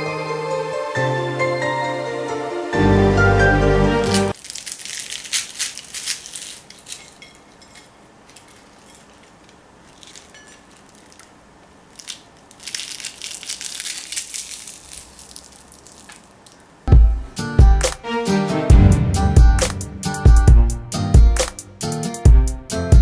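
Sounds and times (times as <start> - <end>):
fried pastry crackling when torn: 4.0 - 16.8.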